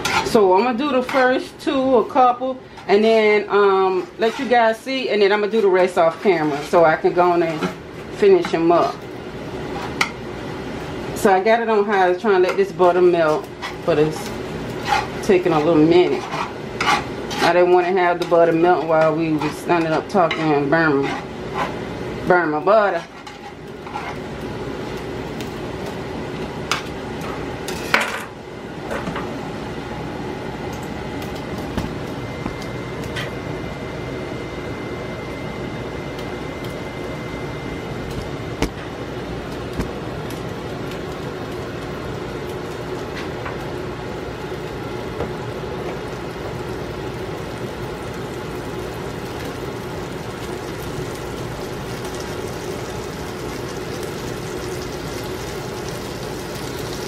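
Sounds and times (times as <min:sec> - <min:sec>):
butter sizzling in frying pan: 0:39.6 - 0:57.0.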